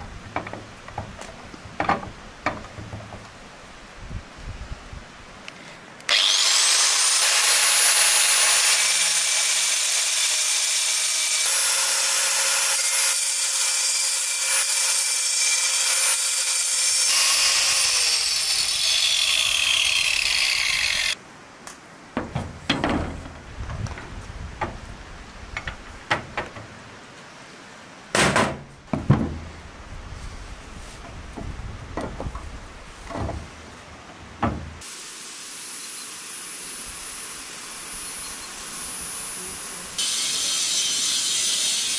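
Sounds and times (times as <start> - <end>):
knocks: 0.3 - 3.3, 22.2 - 24.0, 28.2 - 29.5
angle grinder cutting bone: 6.1 - 21.2, 40.0 - 41.9.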